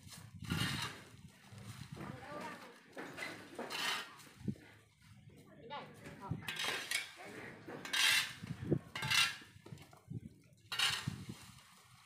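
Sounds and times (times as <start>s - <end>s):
broom sweeping dry leaves: 0.0s - 2.8s, 10.8s - 12.0s.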